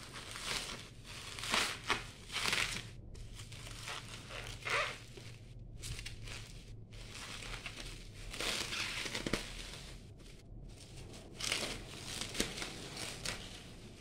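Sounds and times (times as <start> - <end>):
bubble wrap crinkling: 0.0 - 14.0.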